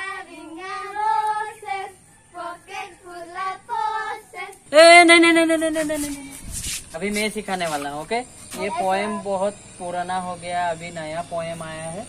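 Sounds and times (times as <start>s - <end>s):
children singing: 0.0s - 4.6s.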